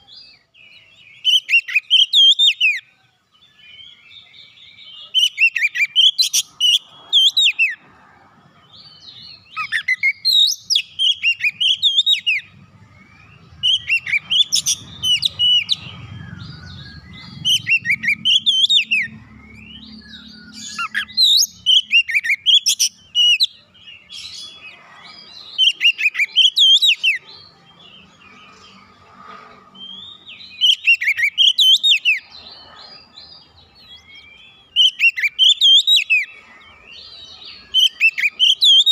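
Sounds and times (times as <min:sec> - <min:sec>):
songbird whistling phrases: 0:09.3 - 0:23.6, 0:25.6 - 0:27.2, 0:29.8 - 0:32.2, 0:34.0 - 0:36.4, 0:37.5 - 0:38.9.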